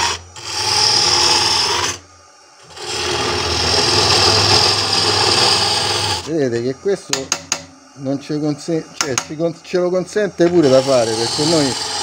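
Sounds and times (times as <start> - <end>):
lathe tool cutting wood: 0.0 - 2.0, 2.6 - 6.4, 10.4 - 12.0.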